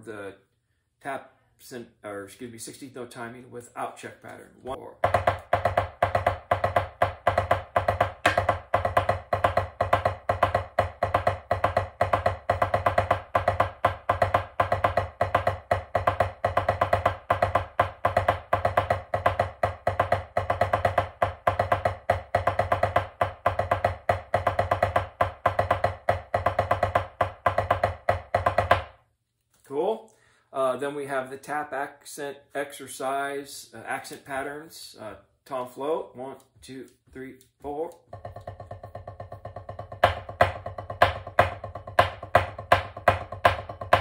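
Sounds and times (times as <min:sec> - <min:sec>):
drumsticks tapping on drum: 0:37.2 - 0:44.0.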